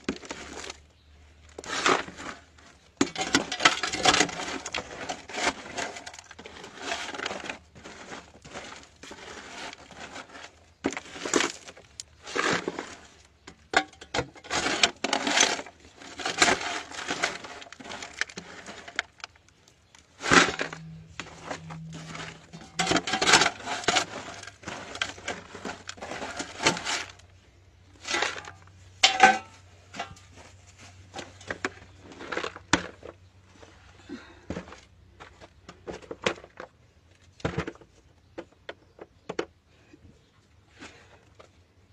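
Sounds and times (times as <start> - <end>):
scraping and crunching of soil: 0.0 - 41.9.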